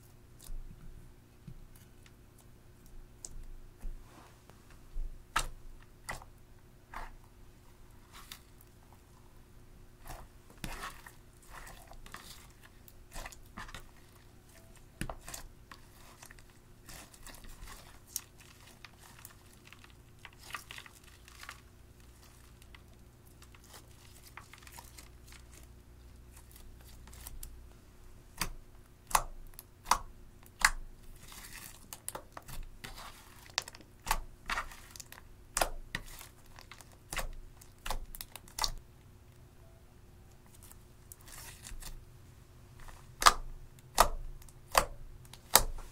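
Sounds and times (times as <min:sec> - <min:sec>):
slime crackling and popping: 0:15.0 - 0:21.7, 0:28.4 - 0:38.8, 0:43.2 - 0:45.8.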